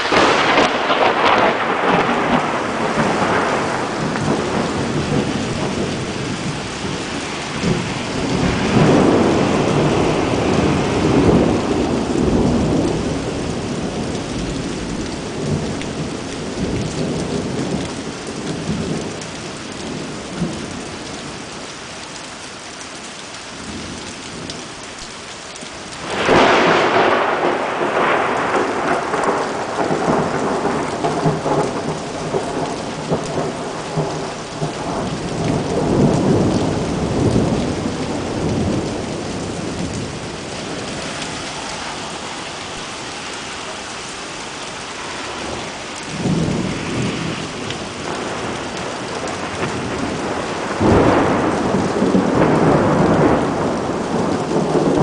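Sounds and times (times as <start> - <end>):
sharp thunderclap: 0.0 - 15.8, 26.0 - 40.8, 45.4 - 55.0
thunder rumbling: 0.0 - 19.2, 26.0 - 43.8, 44.4 - 55.0
heavy rain pouring: 0.0 - 55.0.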